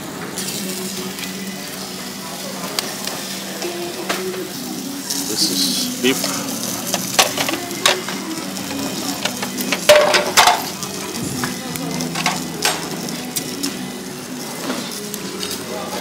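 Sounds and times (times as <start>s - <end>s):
food sizzling in hot oil: 0.4s - 16.0s
utensils clacking against pan: 6.2s - 11.0s, 12.0s - 13.5s.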